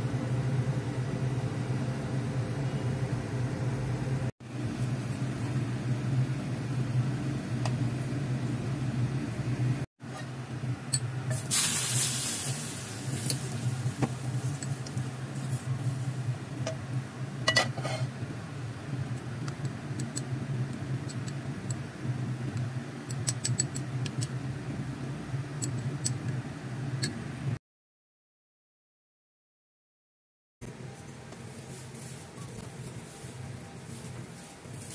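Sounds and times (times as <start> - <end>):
steady low hum: 0.0 - 27.6, 30.6 - 34.9
hot oil sizzling: 11.3 - 16.7.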